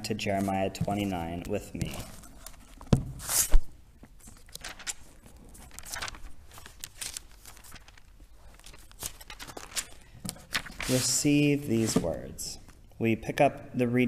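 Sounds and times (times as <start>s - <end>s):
pages turning: 0.2s - 12.8s.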